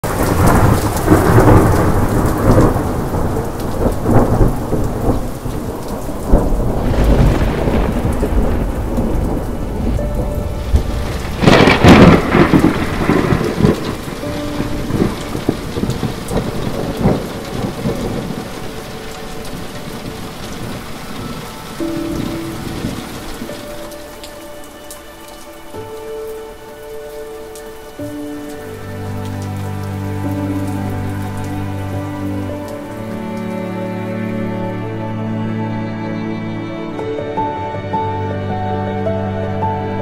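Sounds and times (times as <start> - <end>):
loud thunderclap: 0.0 - 18.7
rolling thunder: 0.0 - 24.4
steady rain: 0.0 - 40.0.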